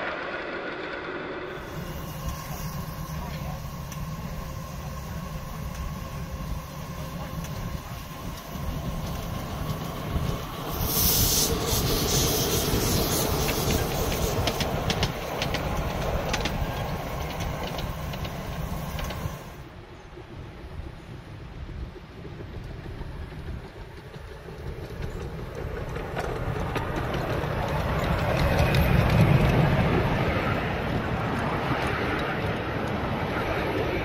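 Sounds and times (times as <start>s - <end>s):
miniature train rumbling: 0.0s - 34.0s
loud hissing: 1.5s - 19.6s
wheels clicking over rail joints: 1.7s - 19.7s, 21.6s - 34.0s.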